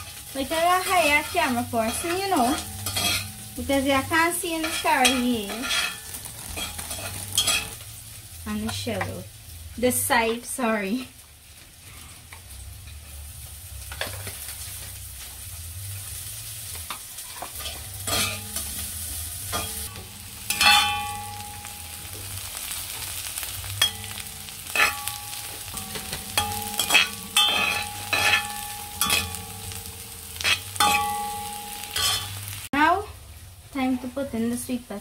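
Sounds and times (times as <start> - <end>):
spoon knocking ringing wok: 0.0 - 6.0, 19.5 - 22.3, 23.7 - 32.5
metal spoon scraping wok: 0.0 - 7.8, 17.2 - 32.7
vegetables sizzling in oil: 0.0 - 35.0.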